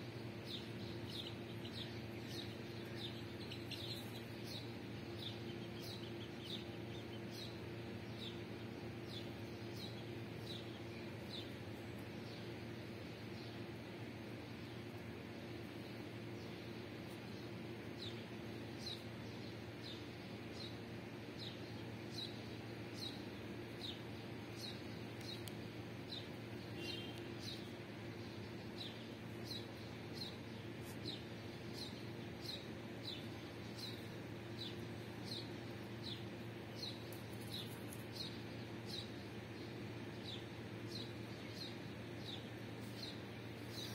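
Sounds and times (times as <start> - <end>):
chicks peeping: 0.6 - 7.5.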